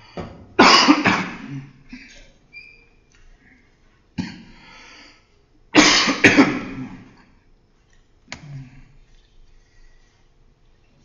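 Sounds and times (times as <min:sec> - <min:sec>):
person coughing: 0:00.6 - 0:02.4, 0:05.8 - 0:07.1.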